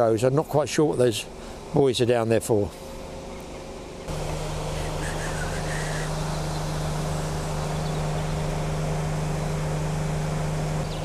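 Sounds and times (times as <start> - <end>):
rushing outdoor noise: 2.5 - 11.0
motor humming: 2.7 - 11.0.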